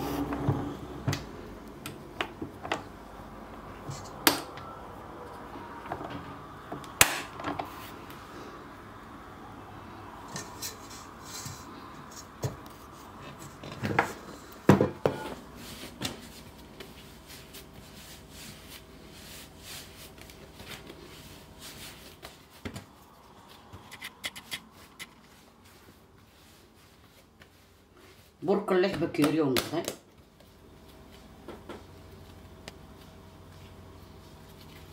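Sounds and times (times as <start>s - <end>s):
hands kneading dough: 15.4s - 34.9s.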